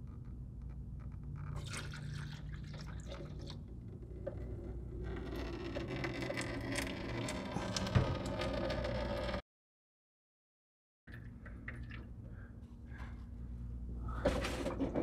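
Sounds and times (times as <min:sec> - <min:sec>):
liquid pouring into a funnel: 0:01.5 - 0:03.6, 0:11.1 - 0:12.2
liquid trickling into plastic jug: 0:01.5 - 0:03.6.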